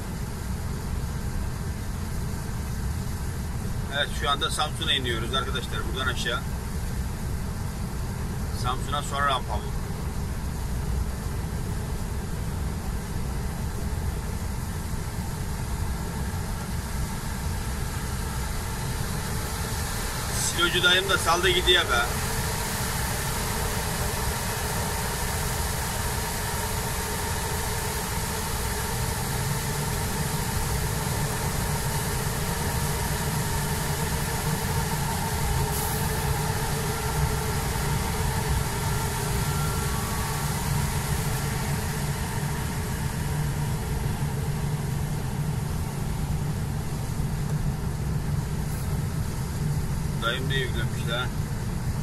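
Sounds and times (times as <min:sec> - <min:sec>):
diesel truck engine running: 0:15.9 - 0:52.0
tyres hissing on wet road: 0:29.4 - 0:43.0.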